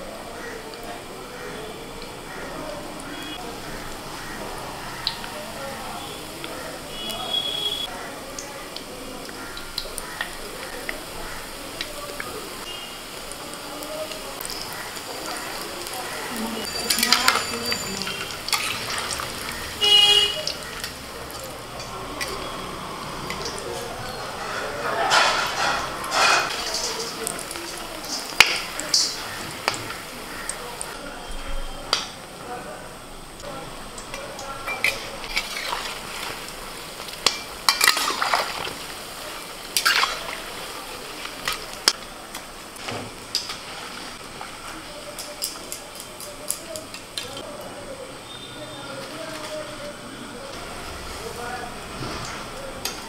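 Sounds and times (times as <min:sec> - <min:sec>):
oil sizzling while deep-frying: 0:00.0 - 0:53.0
loud pitched toot: 0:06.9 - 0:07.9, 0:19.7 - 0:20.6
metal spoon clinking against pan: 0:16.6 - 0:18.9.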